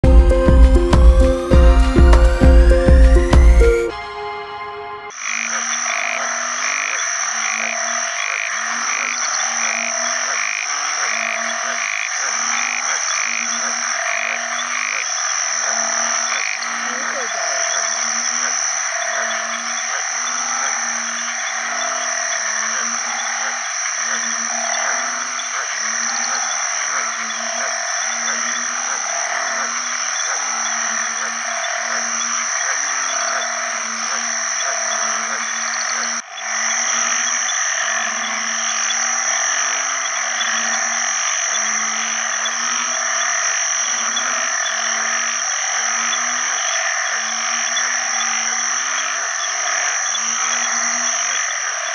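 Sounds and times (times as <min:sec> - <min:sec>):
chorus of frogs: 0:00.0 - 0:00.9, 0:05.1 - 0:51.9
high-pitched drone: 0:00.0 - 0:06.6
frog mating call: 0:05.1 - 0:51.9.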